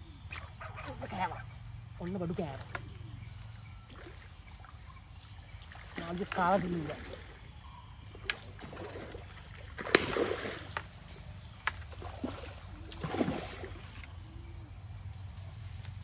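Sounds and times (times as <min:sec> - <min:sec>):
fish splashing in water: 0:08.2 - 0:11.0, 0:11.8 - 0:14.1.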